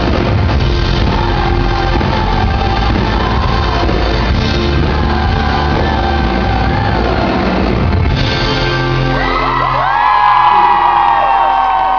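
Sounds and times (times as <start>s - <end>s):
lead vocal singing: 0.0s - 8.2s
live pop-rock band playing: 0.0s - 11.9s.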